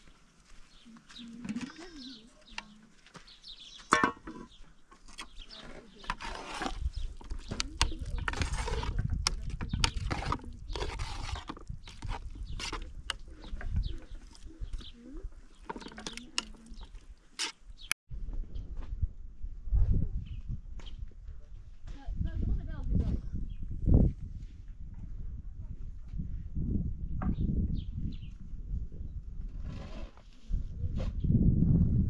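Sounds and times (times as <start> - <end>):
metal ladle scraping a pot: 5.1 - 14.9, 15.6 - 17.6.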